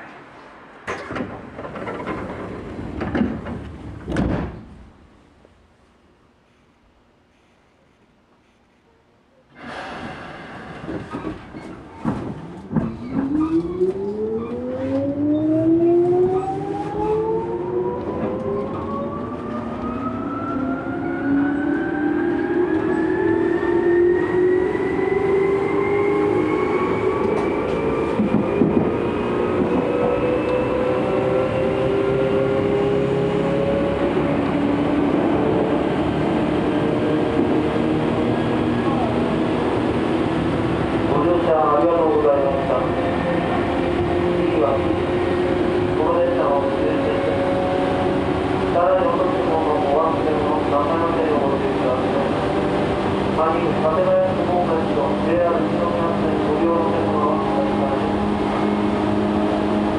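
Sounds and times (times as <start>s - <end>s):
train clicks and knocks: 0.8s - 4.8s, 10.7s - 13.8s, 27.2s - 29.9s.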